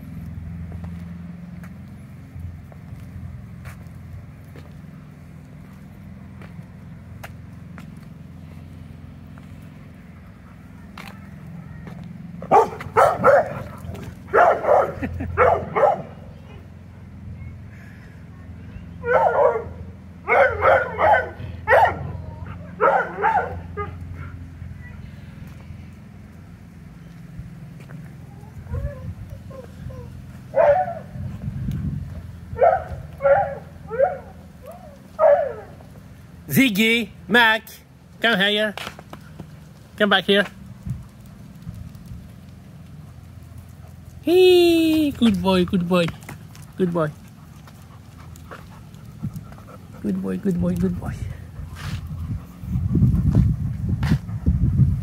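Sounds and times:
dog barking: 12.4 - 16.6, 19.0 - 24.4, 30.5 - 31.2, 32.6 - 35.8.

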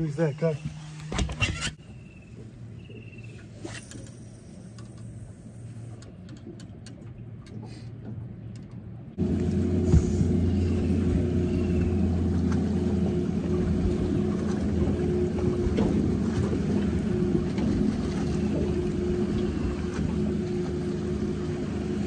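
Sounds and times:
boat motor humming: 0.0 - 22.0
faint clicks: 3.7 - 5.2.

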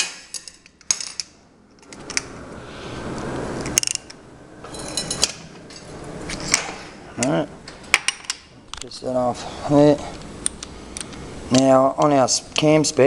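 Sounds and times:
tools and metal parts clinking: 0.0 - 2.3, 3.7 - 9.0.

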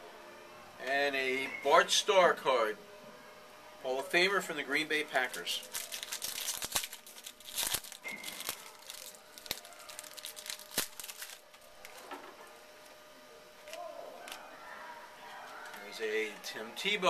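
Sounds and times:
foil wrapper crinkling and tearing: 5.1 - 12.2, 13.6 - 14.4, 15.4 - 16.6.

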